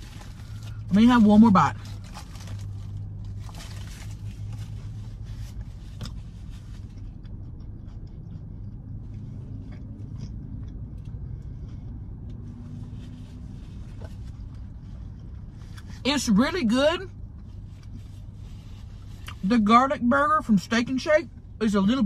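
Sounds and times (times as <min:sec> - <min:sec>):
wrapper crinkling: 0:00.0 - 0:04.7
car engine idling hum: 0:00.0 - 0:22.0
person chewing: 0:05.5 - 0:15.9.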